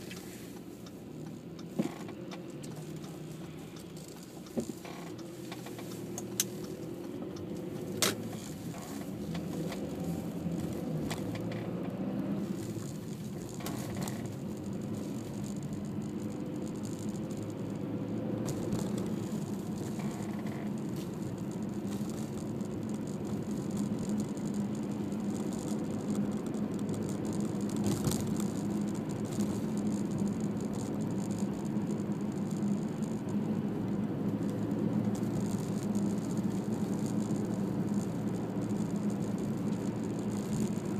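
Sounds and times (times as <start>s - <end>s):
car engine and road noise: 0.0s - 40.9s.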